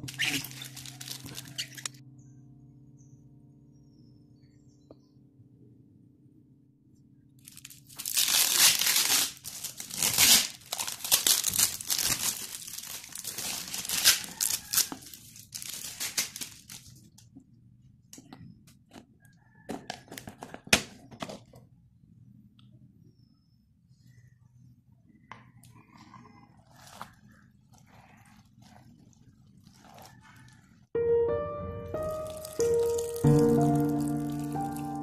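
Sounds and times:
packing tape tearing: 0.0 - 1.9, 7.5 - 17.0, 32.2 - 34.9.

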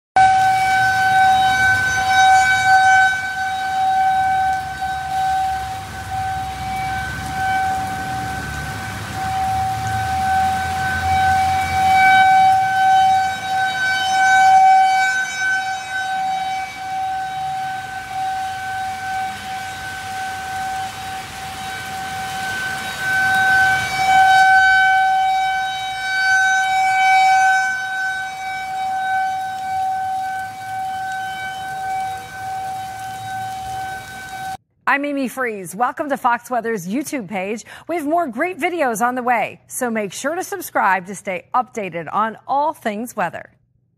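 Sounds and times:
tornado warning siren wailing: 0.2 - 34.6.

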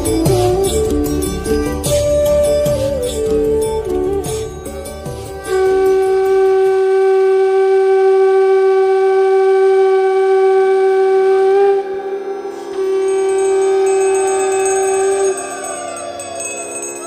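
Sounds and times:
conch shell blast: 5.2 - 16.9.

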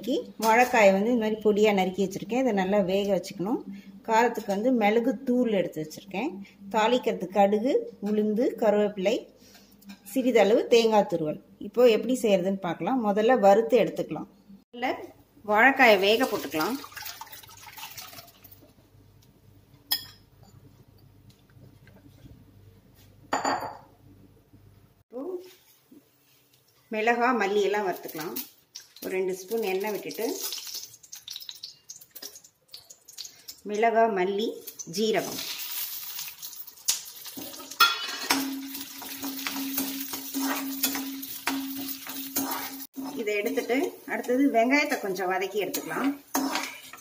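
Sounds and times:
low steady hum: 0.0 - 25.0
steady low hum: 2.6 - 8.1
spices sizzling in hot oil: 27.4 - 47.0
glass bowl clinking on metal pot: 37.6 - 43.1.

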